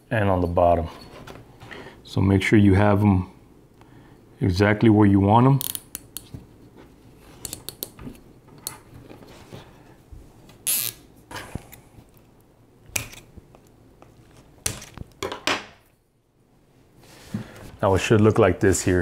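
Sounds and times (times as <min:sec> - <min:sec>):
cable ties ratcheting: 0:05.6 - 0:06.3.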